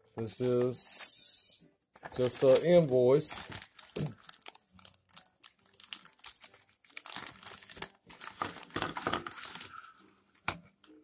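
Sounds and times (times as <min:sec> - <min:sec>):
plastic bag crinkling: 0:02.0 - 0:09.9.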